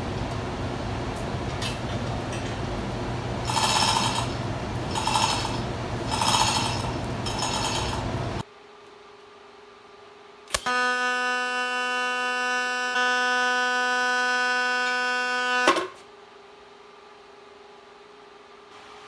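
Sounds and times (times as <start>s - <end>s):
welding arc buzzing: 2.8s - 8.4s, 10.5s - 16.0s
welding arc crack: 3.4s - 8.2s.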